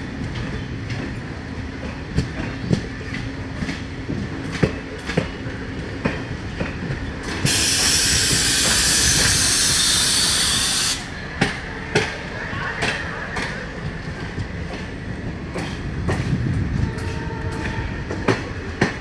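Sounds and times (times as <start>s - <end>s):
train wheels clicking on rail joints: 0.1s - 19.0s
loud even hiss: 7.4s - 11.1s.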